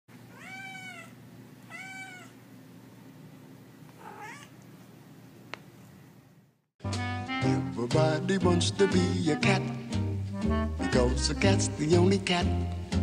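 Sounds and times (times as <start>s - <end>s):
cat meowing: 0.3s - 2.4s, 4.0s - 4.6s.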